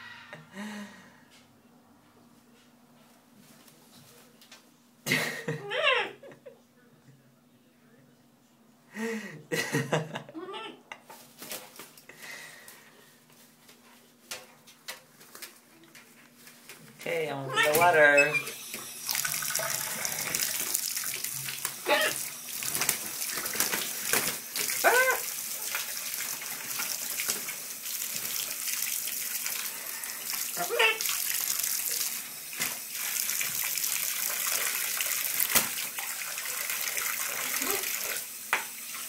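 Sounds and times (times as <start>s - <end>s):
parrot calls: 5.6s - 6.2s, 10.3s - 10.8s, 17.4s - 18.6s, 21.8s - 22.2s, 24.8s - 25.3s, 30.6s - 31.1s
tap water running: 16.7s - 39.0s
bird splashing water: 18.8s - 38.2s.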